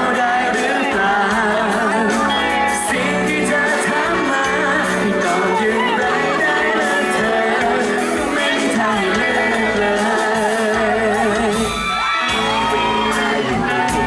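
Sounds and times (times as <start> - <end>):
bass guitar: 0.0 - 14.0
electric guitar: 0.0 - 14.0
person singing: 0.0 - 14.0
crowd whooping: 4.0 - 9.5, 10.2 - 14.0.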